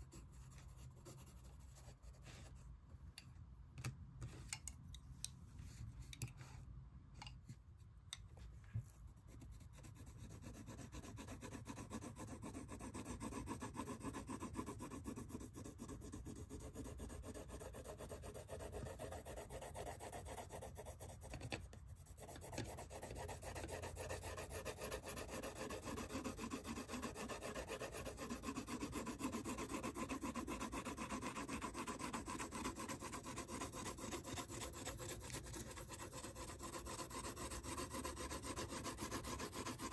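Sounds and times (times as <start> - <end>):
pencil shading on paper: 9.2 - 39.9.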